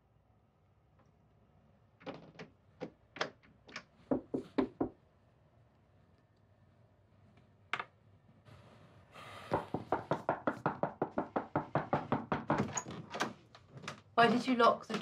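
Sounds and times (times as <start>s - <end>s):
knocking on a wooden door: 4.1s - 5.0s, 9.5s - 12.8s.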